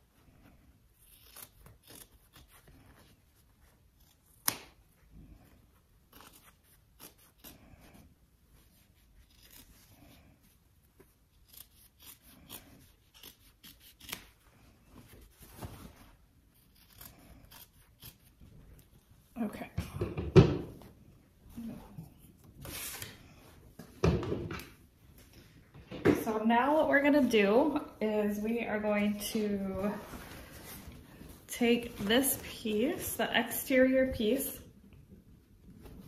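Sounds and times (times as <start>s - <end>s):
scissors snipping fabric: 1.0s - 4.8s, 6.0s - 7.9s, 8.6s - 10.0s, 11.0s - 14.4s, 16.5s - 18.9s.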